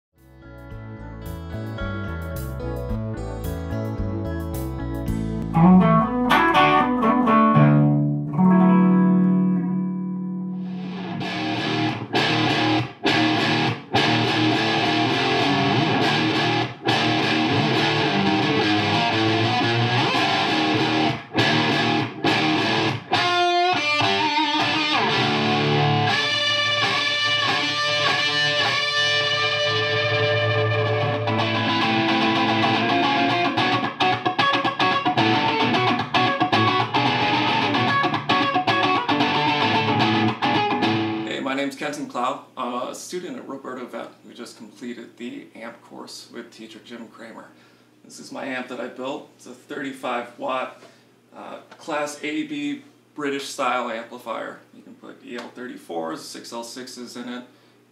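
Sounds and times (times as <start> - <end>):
distorted electric guitar: 5.1 - 41.3.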